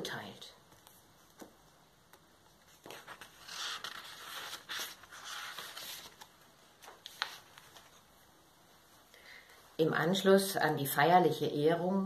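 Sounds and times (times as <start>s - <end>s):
book pages rustling: 0.7s - 8.2s.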